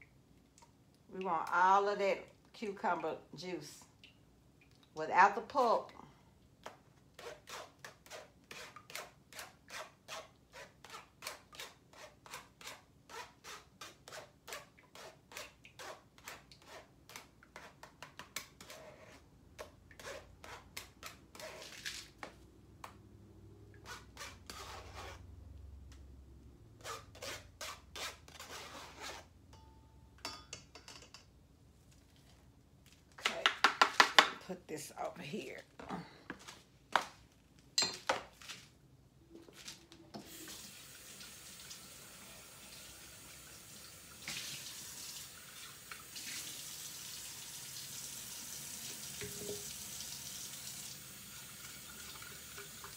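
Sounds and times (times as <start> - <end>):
kitchenware clatter: 29.6 - 31.3, 37.8 - 38.3.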